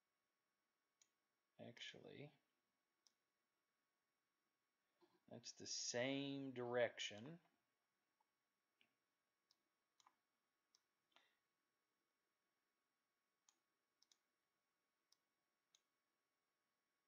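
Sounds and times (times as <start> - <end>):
computer mouse clicks: 13.4 - 14.2.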